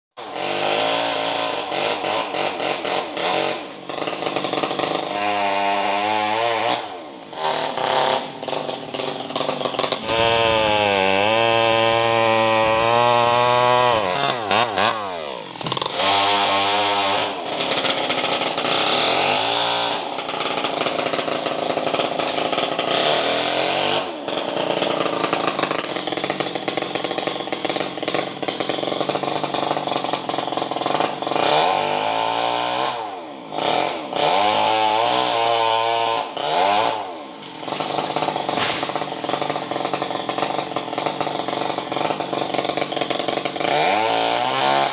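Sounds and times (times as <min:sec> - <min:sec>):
chainsaw revving and cutting wood: 0:00.2 - 0:44.9.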